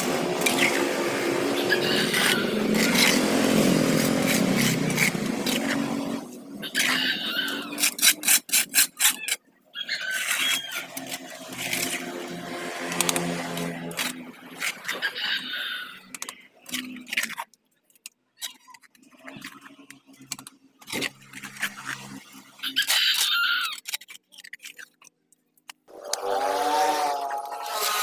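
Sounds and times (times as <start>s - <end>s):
engine-like drone: 0.0s - 8.0s, 10.2s - 17.0s, 25.9s - 28.0s
metal hoe scraping wet sludge: 0.0s - 9.2s, 9.9s - 17.4s, 25.9s - 28.0s.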